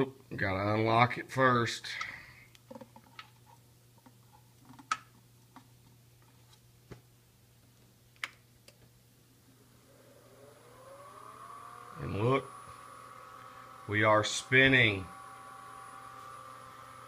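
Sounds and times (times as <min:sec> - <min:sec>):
low steady hum: 0:00.0 - 0:17.0
lathe motor whining: 0:09.5 - 0:17.0.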